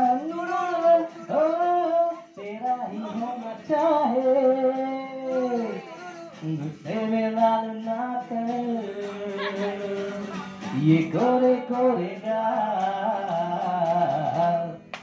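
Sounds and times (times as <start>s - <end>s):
man singing: 0.0s - 14.9s
acoustic guitar: 0.0s - 15.0s.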